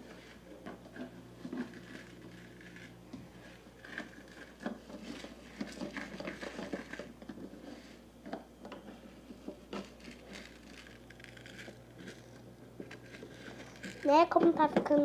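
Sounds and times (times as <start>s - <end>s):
spoon stirring in plastic pot: 0.0s - 15.0s.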